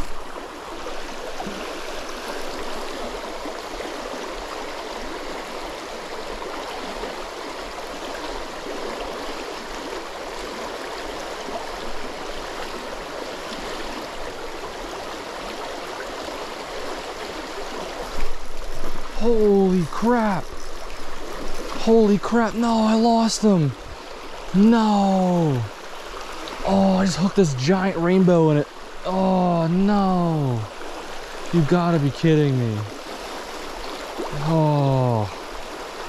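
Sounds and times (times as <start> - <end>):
creek rushing over stones: 0.0 - 36.0.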